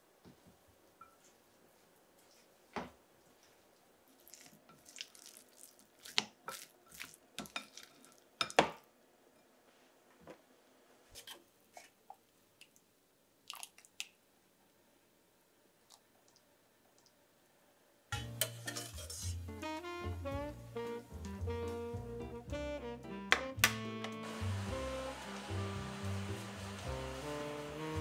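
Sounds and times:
utensils and dishes clinking: 18.2s - 19.5s.

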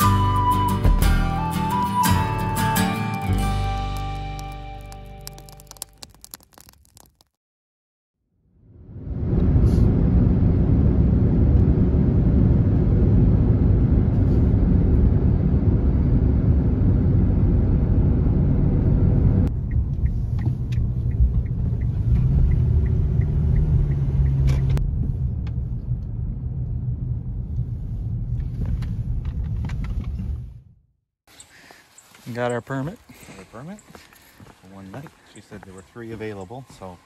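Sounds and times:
road and wind rumble: 8.6s - 30.8s
in-cabin car hum: 9.0s - 30.7s
turn signal ticking: 19.5s - 24.8s.

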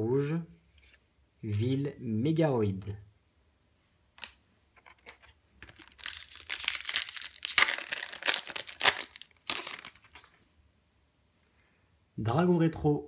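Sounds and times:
foil wrapper crinkling: 4.8s - 10.4s.

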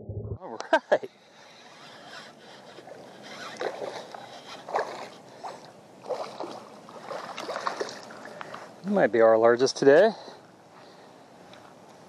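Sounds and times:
fish splashing in water: 3.5s - 8.4s.

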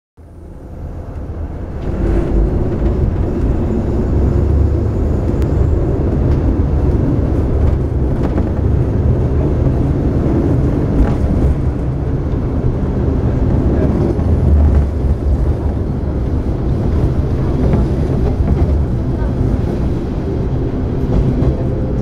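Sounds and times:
train diesel engine drone: 0.2s - 22.0s.

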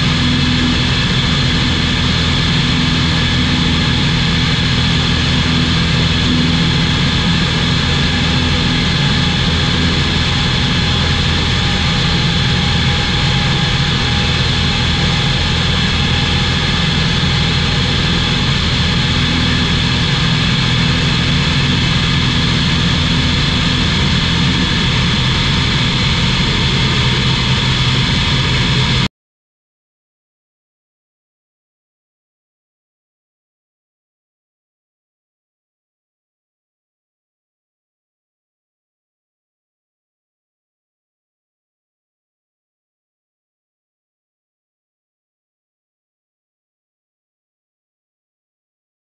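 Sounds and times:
light aircraft engine droning: 0.0s - 29.1s.

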